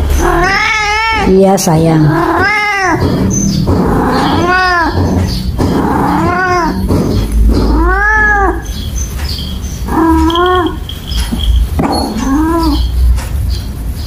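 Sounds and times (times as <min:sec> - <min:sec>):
cat yowling: 0:00.1 - 0:01.4, 0:02.0 - 0:08.9, 0:09.9 - 0:13.0.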